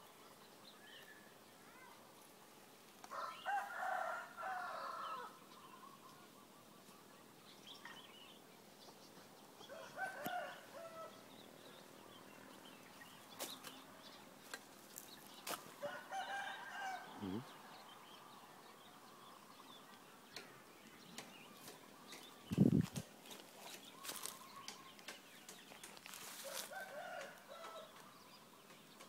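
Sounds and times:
rooster crowing: 3.1 - 5.3, 15.8 - 17.4.

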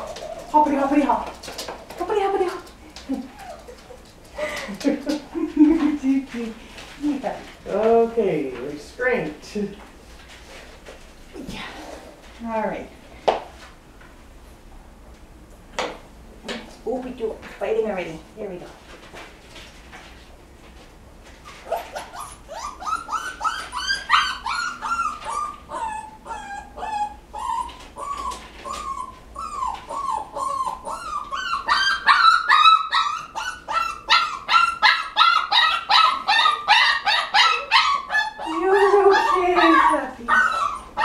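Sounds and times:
puppy yelping and whining: 0.0 - 0.6, 21.4 - 41.0.

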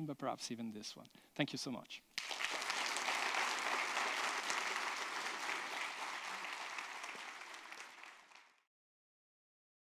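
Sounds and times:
audience applauding: 2.2 - 8.7.

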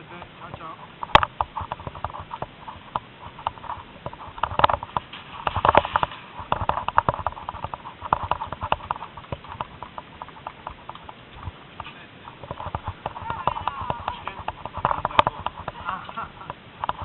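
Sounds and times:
footsteps on gravel: 0.6 - 16.5.

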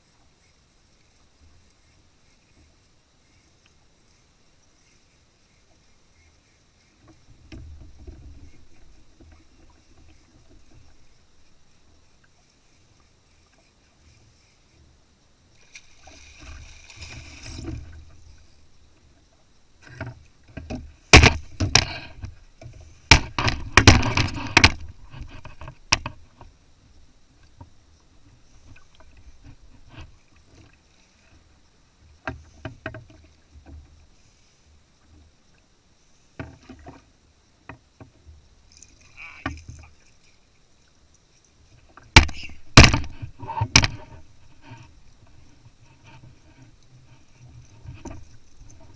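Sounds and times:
fishing gear knocking on kayak hull: 20.7 - 22.3, 23.1 - 24.9, 42.0 - 44.2.

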